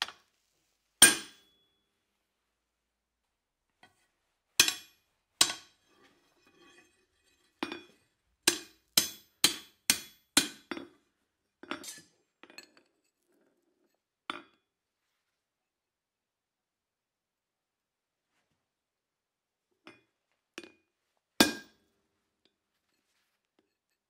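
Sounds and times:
hammer striking metal on anvil: 0:01.0 - 0:01.5, 0:04.6 - 0:05.7, 0:08.5 - 0:10.8, 0:21.4 - 0:21.7.

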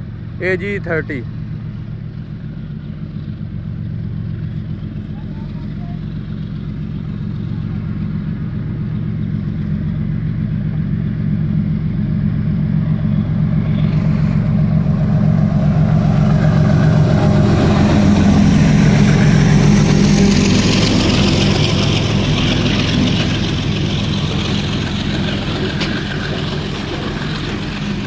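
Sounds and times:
diesel locomotive engines droning: 0:00.0 - 0:28.0
train wheels on rails: 0:12.9 - 0:28.0.

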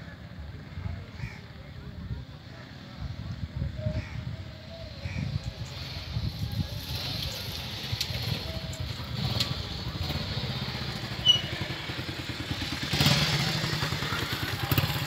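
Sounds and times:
small motorcycle engine running: 0:05.0 - 0:15.0
high squeak: 0:11.2 - 0:11.7.

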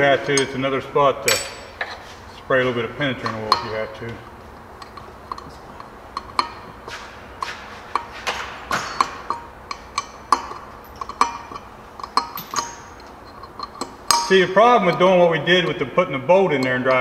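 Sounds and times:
ratchet wrench clicking: 0:08.7 - 0:15.7.

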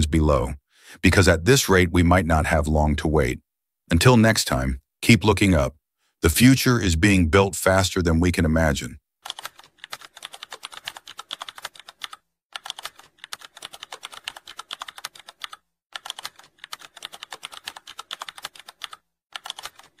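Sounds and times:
keyboard typing: 0:09.2 - 0:20.0.

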